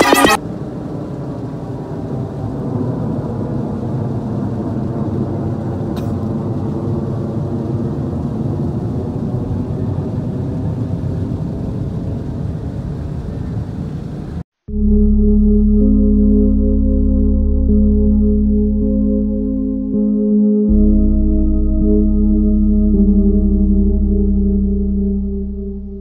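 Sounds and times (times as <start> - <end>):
low rumbling drone: 14.7 - 26.0
music: 14.7 - 26.0.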